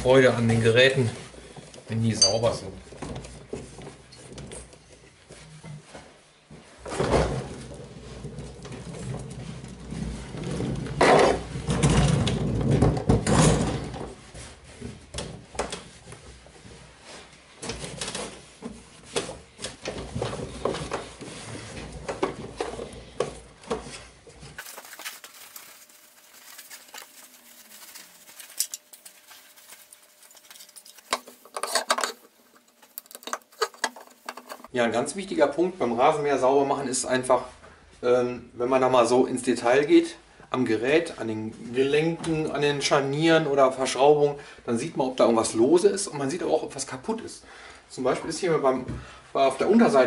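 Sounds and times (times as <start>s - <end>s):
rag rubbing plastic: 23.7s - 34.7s.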